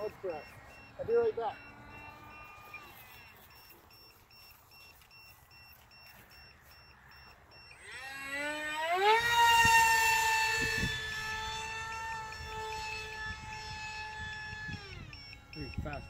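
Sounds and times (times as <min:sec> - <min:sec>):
model jet motor whining: 0:00.0 - 0:03.8, 0:07.7 - 0:16.0
faint alarm beeping: 0:00.0 - 0:08.4, 0:10.8 - 0:16.0.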